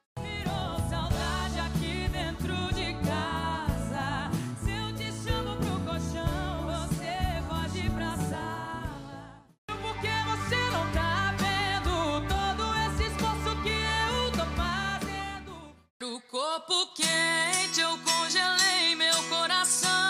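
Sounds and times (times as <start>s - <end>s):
band accompaniment with bass line: 0.2s - 15.7s
woman singing: 0.2s - 20.0s.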